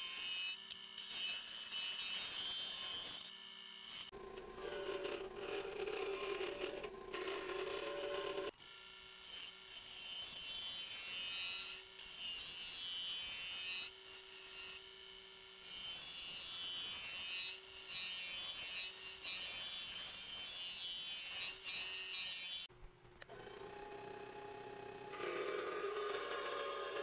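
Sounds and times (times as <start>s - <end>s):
lathe motor hum: 23.3s - 27.0s
lathe tool scraping wood: 25.0s - 27.0s.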